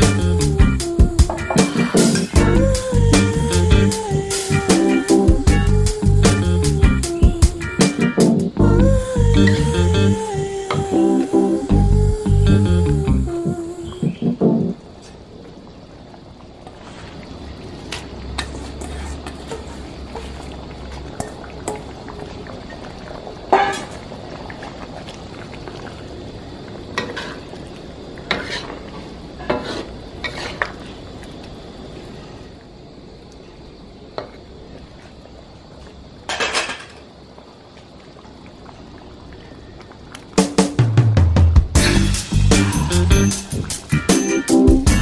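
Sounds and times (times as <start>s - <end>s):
curry bubbling: 15.5s - 32.3s, 37.2s - 40.4s
metal spatula scraping wok: 18.4s - 20.3s, 28.3s - 28.8s, 29.4s - 30.7s.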